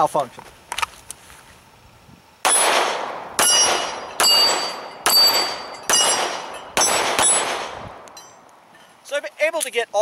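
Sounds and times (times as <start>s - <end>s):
pistol shots: 2.4s - 8.2s
steel plate target clanging: 3.4s - 9.0s.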